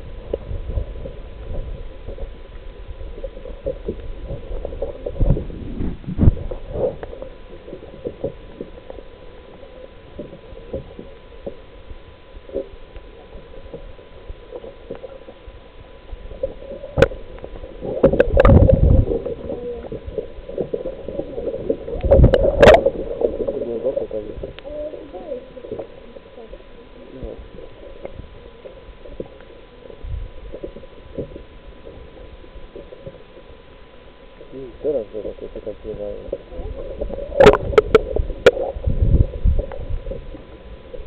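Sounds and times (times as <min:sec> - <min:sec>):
faint steady tone: 0:00.0 - 0:41.0
muffled water sloshing and gurgling: 0:00.0 - 0:41.0
rush of water: 0:16.3 - 0:26.3.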